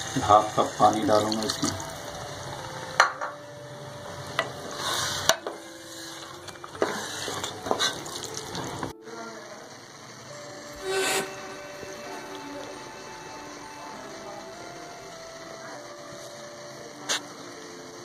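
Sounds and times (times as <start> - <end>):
light sizzle: 0.0 - 18.0
spatula stirring in metal pot: 4.6 - 8.8.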